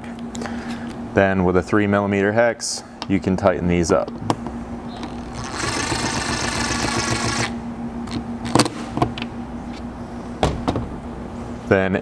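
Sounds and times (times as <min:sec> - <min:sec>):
cordless driver running: 0:05.0 - 0:08.2.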